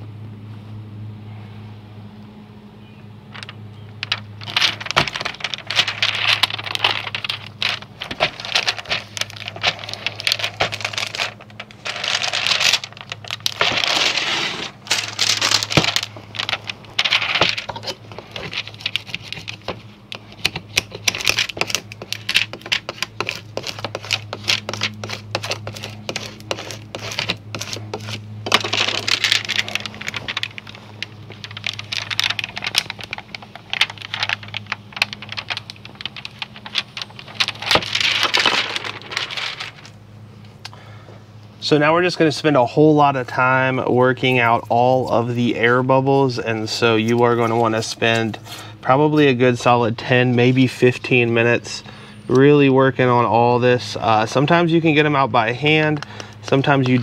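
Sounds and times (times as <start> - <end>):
steady low hum: 0.0 - 57.0
plastic sheet crinkling: 4.0 - 40.0.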